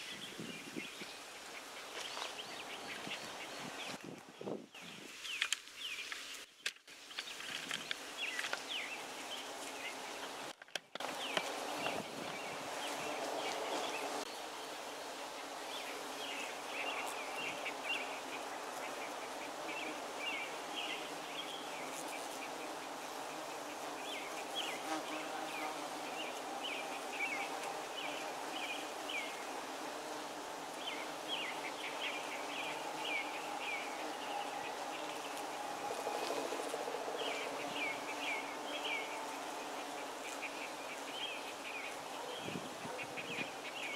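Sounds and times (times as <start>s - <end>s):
bees buzzing: 11.0s - 43.9s.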